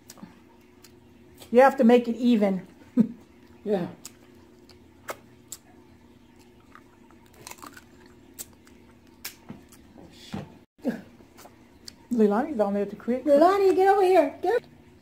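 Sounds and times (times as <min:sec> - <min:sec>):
chewing: 0:03.3 - 0:09.9.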